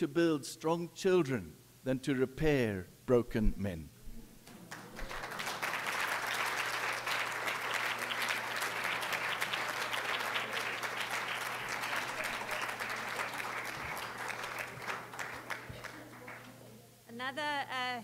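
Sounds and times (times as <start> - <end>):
audience applauding: 4.5 - 16.6.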